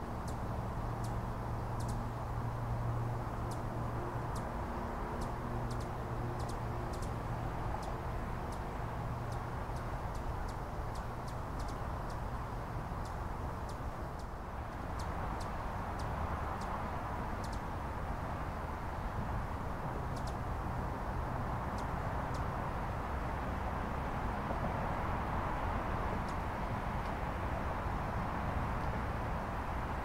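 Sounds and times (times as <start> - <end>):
hummingbird chip calls: 0.1 - 22.7.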